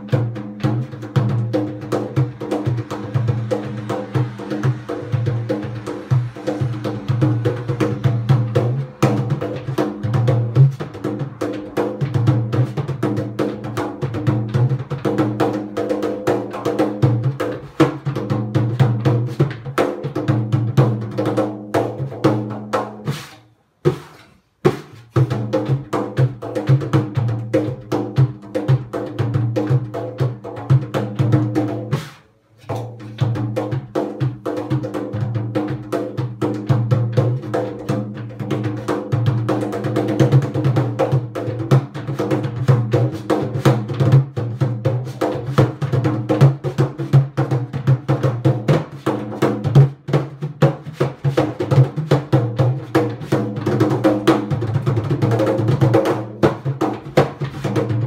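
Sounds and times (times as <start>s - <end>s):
hand drum played rapidly: 0.0s - 23.3s, 23.9s - 58.0s.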